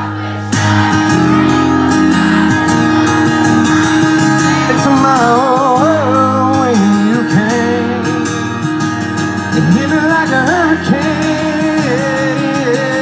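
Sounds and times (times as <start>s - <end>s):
live country band with acoustic guitar: 0.0s - 13.0s
person singing: 9.6s - 13.0s.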